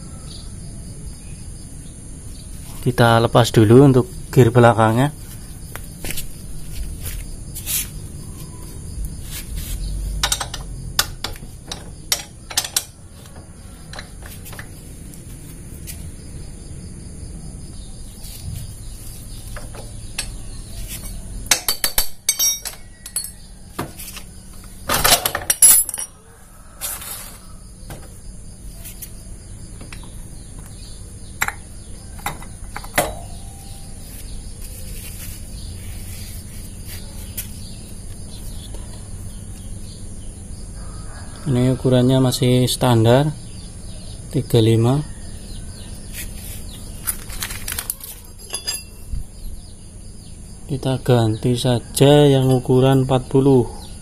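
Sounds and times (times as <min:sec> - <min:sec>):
metallic clinks and clicks: 0:10.2 - 0:13.0, 0:19.6 - 0:23.4, 0:25.5 - 0:26.2, 0:47.7 - 0:49.1
metal clattering: 0:10.2 - 0:14.8, 0:19.5 - 0:23.4, 0:24.9 - 0:26.2, 0:47.9 - 0:49.1.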